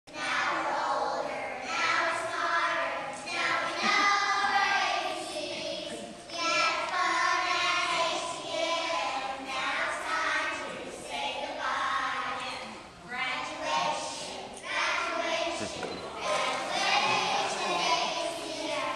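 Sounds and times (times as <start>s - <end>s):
children singing: 0.1s - 12.4s, 13.5s - 18.9s.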